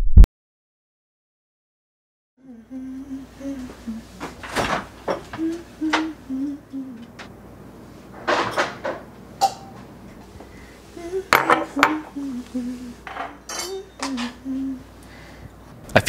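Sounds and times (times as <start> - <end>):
woman humming: 2.4 - 4.5, 5.1 - 7.3, 10.8 - 15.1
pots and dishes clattering: 8.2 - 9.8, 13.0 - 14.4.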